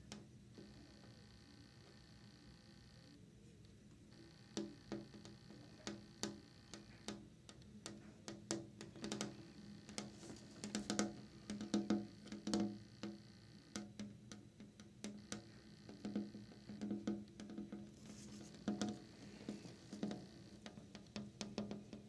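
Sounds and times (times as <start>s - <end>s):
fingernails tapping on glass: 4.6s - 13.2s, 13.8s - 22.0s.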